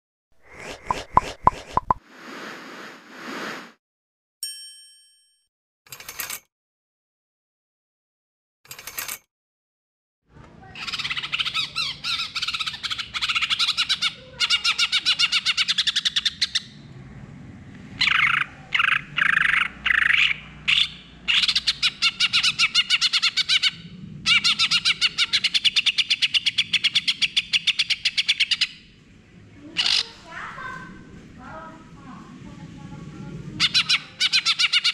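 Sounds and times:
bird singing rapid repeated notes: 0.4 - 2.0.

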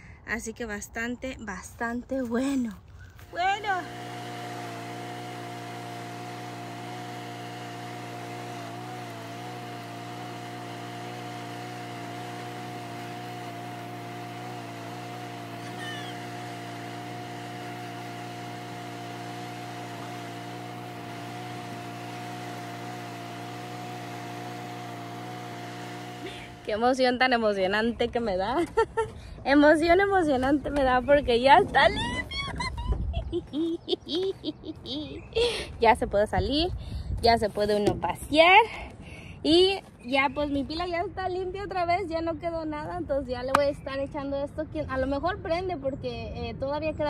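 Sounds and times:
motor humming: 3.1 - 27.2.

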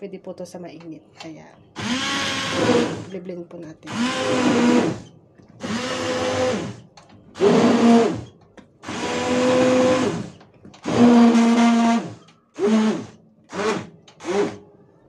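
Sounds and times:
immersion blender whining: 1.8 - 3.1, 3.9 - 6.8, 7.4 - 14.6.

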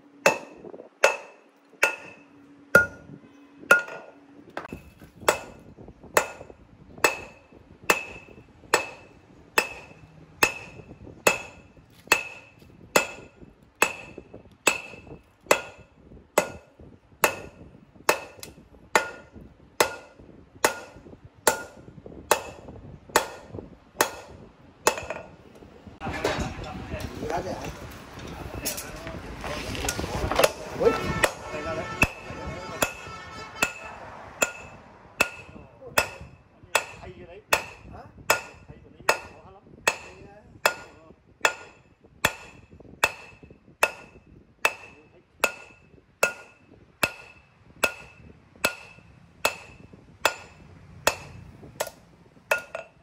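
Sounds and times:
hammer striking steel on anvil: 0.2 - 25.3, 30.3 - 53.0.

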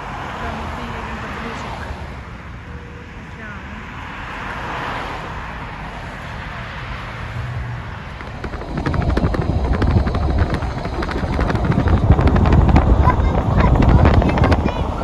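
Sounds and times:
road noise inside a car: 0.0 - 15.0
wind buffeting the microphone: 7.1 - 15.0.

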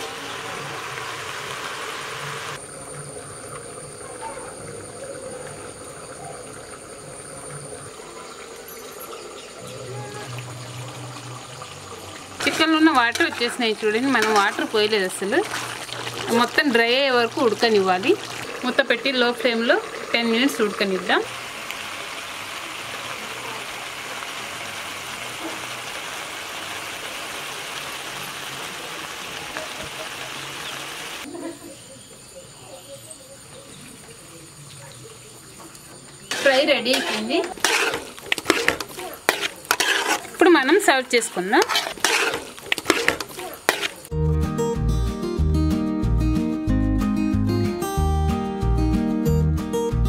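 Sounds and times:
chicken sizzling in a pan: 0.0 - 3.2, 3.8 - 31.4, 35.3 - 44.1.

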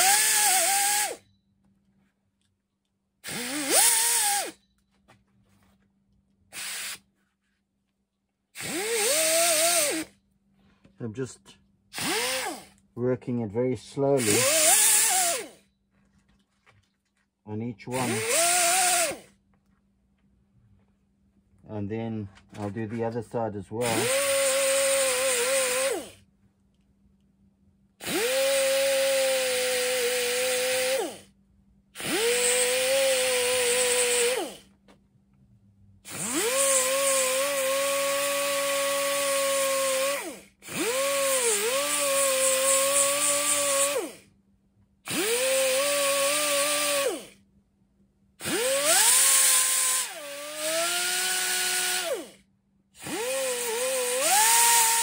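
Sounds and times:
air die grinder whining: 0.0 - 1.2, 3.2 - 4.6, 8.6 - 10.1, 11.9 - 12.7, 14.2 - 15.6, 17.9 - 19.3, 23.8 - 26.2, 28.0 - 31.2, 32.0 - 34.6, 36.1 - 44.2, 45.1 - 47.4, 48.4 - 52.4, 53.0 - 55.0.

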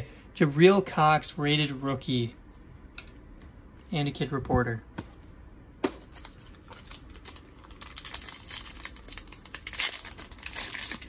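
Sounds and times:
plastic wrapper tearing and crinkling: 6.1 - 11.0.

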